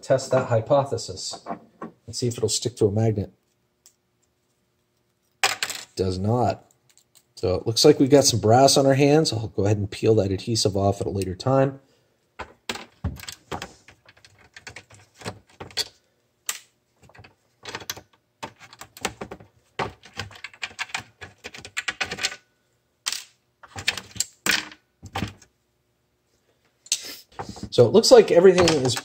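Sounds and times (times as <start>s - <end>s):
small parts knocking on plastic: 12.4s - 15.9s, 17.0s - 22.4s, 27.4s - 29.0s.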